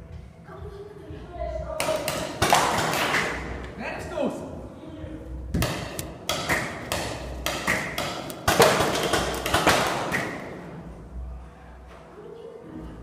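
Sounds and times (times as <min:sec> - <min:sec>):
gunshots echoing indoors: 0:05.6 - 0:10.6.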